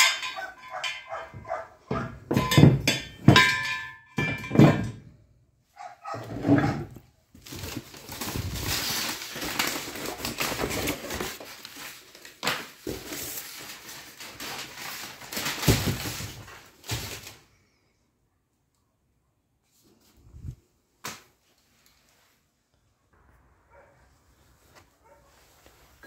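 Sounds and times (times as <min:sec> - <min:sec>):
cardboard packaging rustling: 0:06.9 - 0:17.5
plastic wrapping crinkling: 0:07.3 - 0:17.6.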